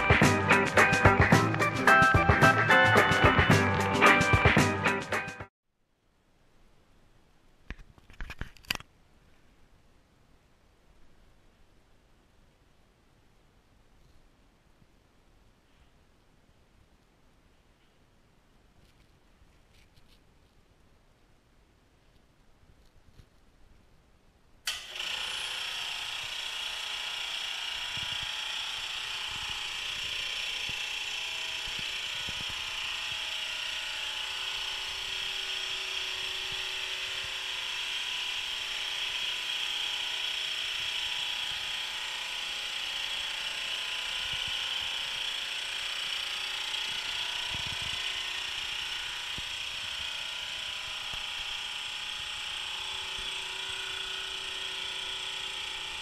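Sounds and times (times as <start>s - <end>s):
air compressor humming and hissing: 0.0s - 5.4s, 24.7s - 56.0s.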